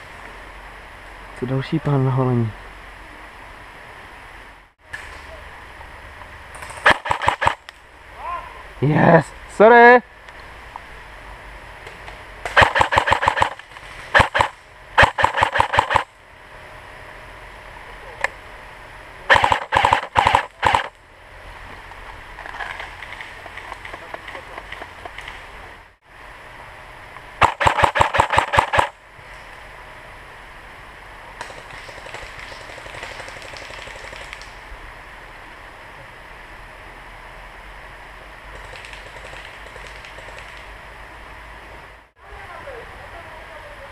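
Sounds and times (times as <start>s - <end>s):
low steady hiss: 0.0s - 43.9s
airsoft gun firing bursts: 6.8s - 7.6s, 12.5s - 16.1s, 19.3s - 20.9s, 27.4s - 29.0s, 38.5s - 40.6s.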